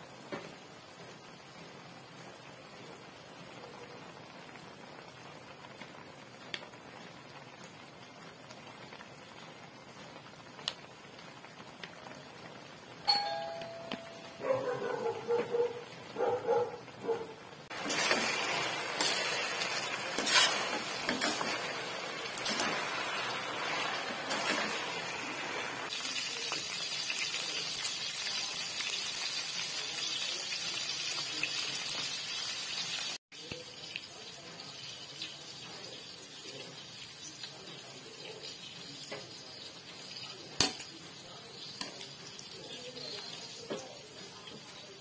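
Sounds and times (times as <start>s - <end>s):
meat sizzling in oil: 17.4s - 45.0s
spatula scraping pan: 17.7s - 25.9s.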